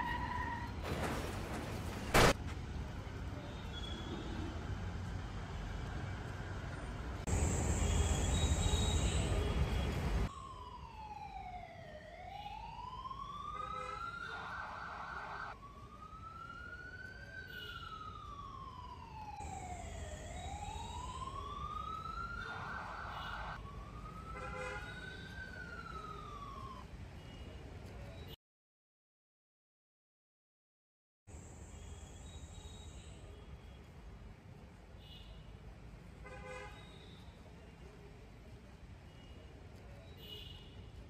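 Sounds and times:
ambulance siren wailing: 10.2s - 26.9s.

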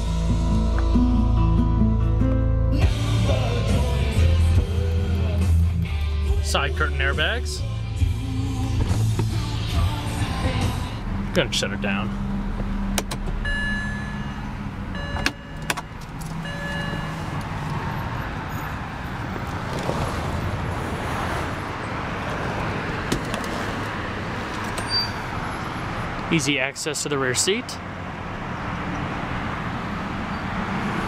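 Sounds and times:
electronic chime tones: 13.4s - 15.7s, 16.4s - 17.3s.

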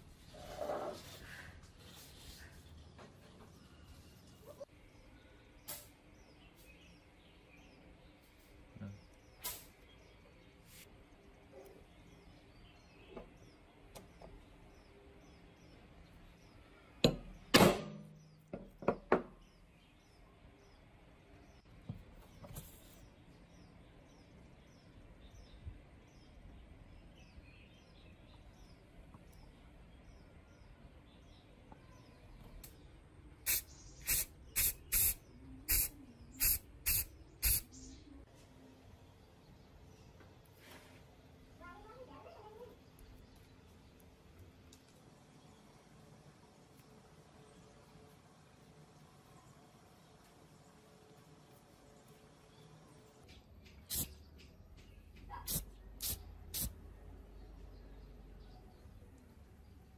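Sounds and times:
short sharp hissing bursts: 9.3s - 10.0s, 33.4s - 37.9s, 53.8s - 54.2s, 55.3s - 56.8s
punch struck onto wood: 17.0s - 18.1s.

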